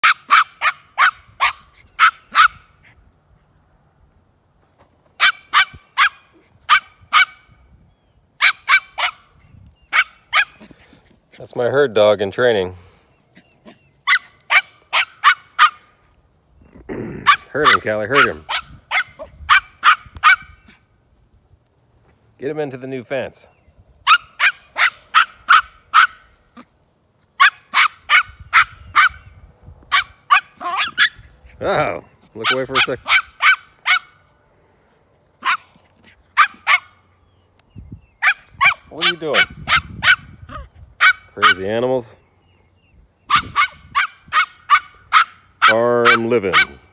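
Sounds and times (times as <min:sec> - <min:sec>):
small dog barking: 0:00.0 - 0:02.7, 0:05.2 - 0:07.5, 0:08.4 - 0:09.3, 0:09.9 - 0:10.8, 0:14.0 - 0:16.0, 0:17.2 - 0:20.8, 0:24.0 - 0:26.7, 0:27.4 - 0:29.3, 0:29.9 - 0:31.3, 0:32.4 - 0:34.2, 0:35.4 - 0:37.0, 0:38.2 - 0:41.7, 0:43.3 - 0:46.9.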